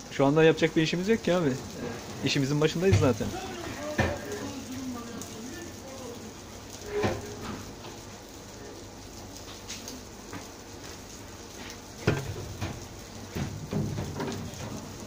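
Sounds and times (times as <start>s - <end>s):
kitchen background noise: 0.0s - 15.0s.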